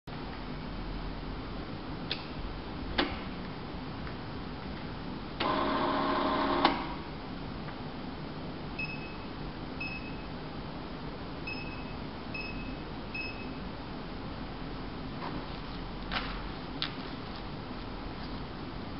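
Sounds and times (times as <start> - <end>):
keypad beeps: 8.8 - 10.3, 11.5 - 13.6.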